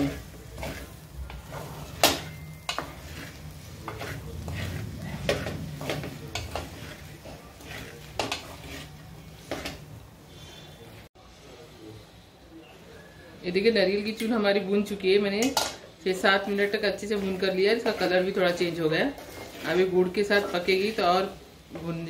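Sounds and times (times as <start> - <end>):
utensil scraping a pan: 0.0 - 11.1, 15.4 - 22.0
light sizzle: 0.0 - 22.0.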